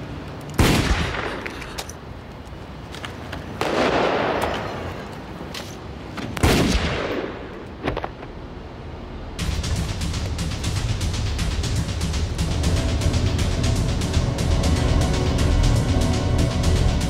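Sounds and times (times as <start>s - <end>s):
loud surge of noise: 9.0s - 17.0s.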